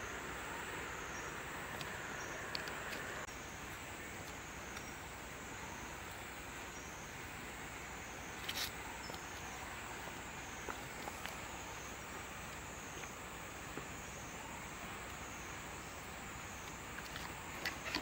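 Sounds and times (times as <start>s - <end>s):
insects buzzing: 0.0s - 18.0s.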